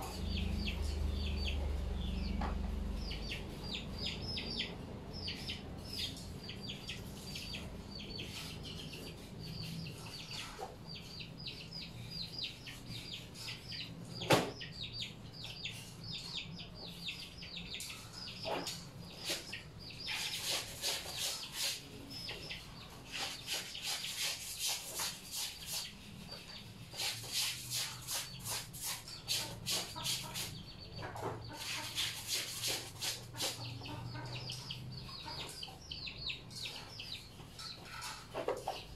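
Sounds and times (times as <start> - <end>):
birds chirping: 0.0 - 38.9
clothes scrubbed by hand in basin: 23.1 - 26.2, 27.0 - 30.6, 31.6 - 33.6.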